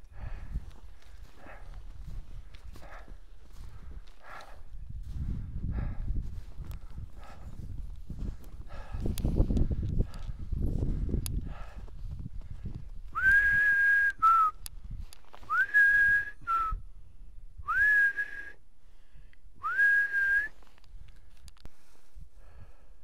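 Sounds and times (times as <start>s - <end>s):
person whistling: 13.2s - 14.6s, 15.5s - 16.8s, 17.6s - 18.6s, 19.6s - 20.6s.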